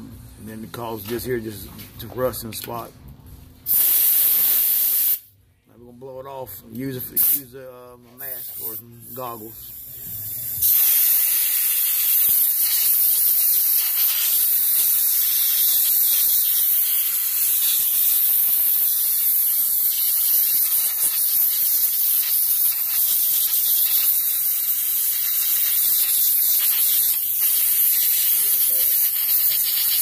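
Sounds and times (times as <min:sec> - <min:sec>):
compressed air gun hissing: 0:03.7 - 0:05.3, 0:09.7 - 0:30.0.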